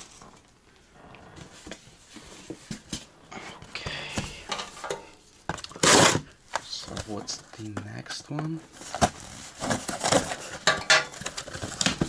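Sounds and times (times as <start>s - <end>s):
cardboard scraping: 5.8s - 6.2s, 8.7s - 12.0s.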